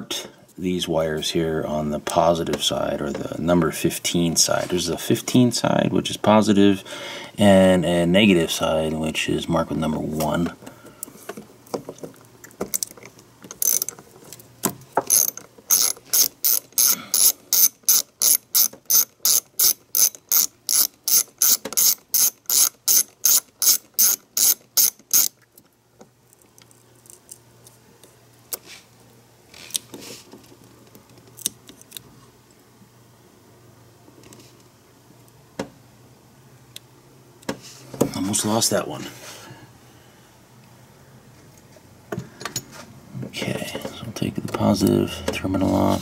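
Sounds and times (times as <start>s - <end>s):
socket ratchet clicking: 13.5s - 14.0s, 15.0s - 25.4s.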